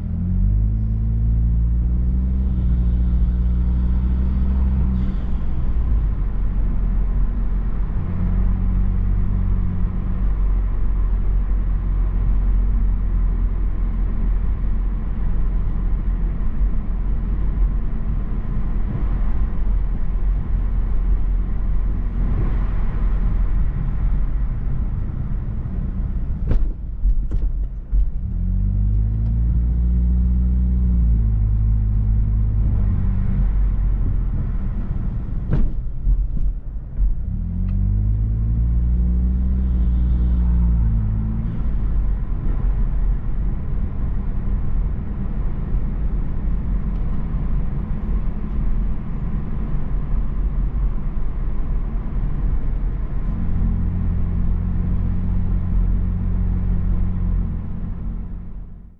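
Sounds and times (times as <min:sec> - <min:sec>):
car engine hum: 0:00.0 - 0:58.9
road and tyre rumble: 0:00.0 - 0:58.9.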